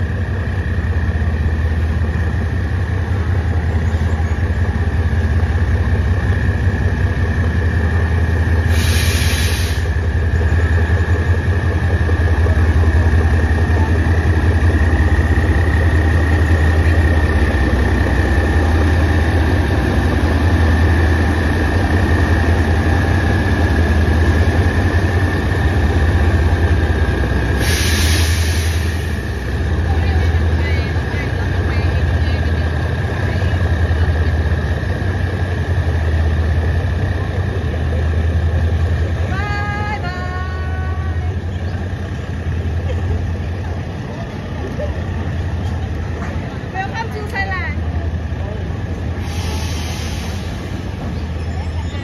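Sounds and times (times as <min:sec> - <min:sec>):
locomotive engine drone: 0:00.0 - 0:52.0
short hiss bursts: 0:08.7 - 0:09.9.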